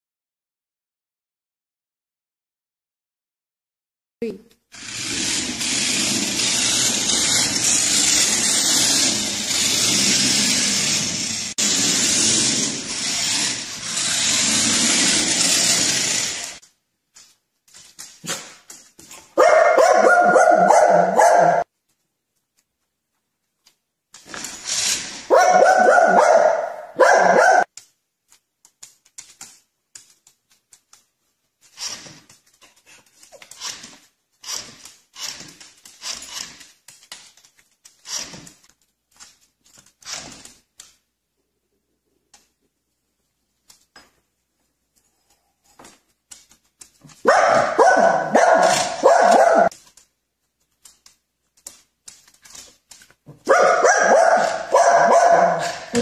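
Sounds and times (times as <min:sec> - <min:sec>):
small dog barking: 0:19.4 - 0:21.6, 0:25.3 - 0:27.7, 0:47.2 - 0:49.7, 0:53.4 - 0:56.0.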